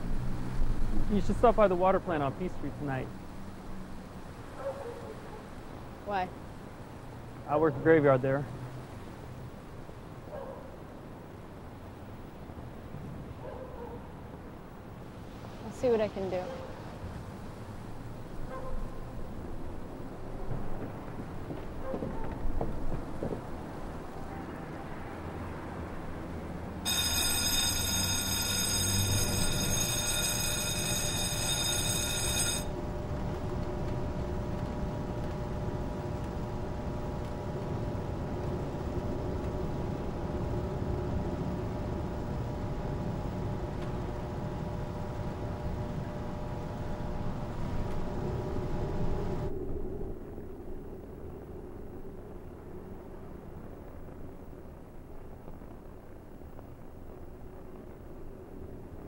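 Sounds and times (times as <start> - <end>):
shrill high whine: 26.9 - 39.7
machinery hum: 26.9 - 51.5.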